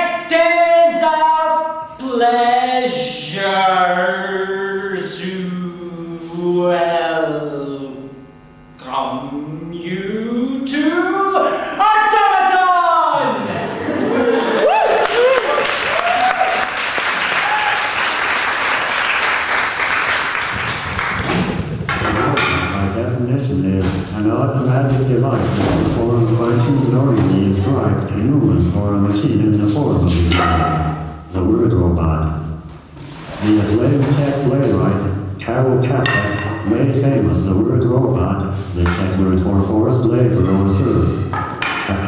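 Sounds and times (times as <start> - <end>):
man singing unaccompanied: 0.0 - 8.1, 9.2 - 11.6
audience applauding: 14.2 - 21.6.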